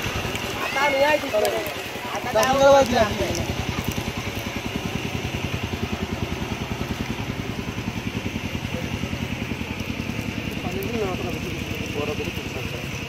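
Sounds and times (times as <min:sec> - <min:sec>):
small engine idling: 0:00.0 - 0:13.0.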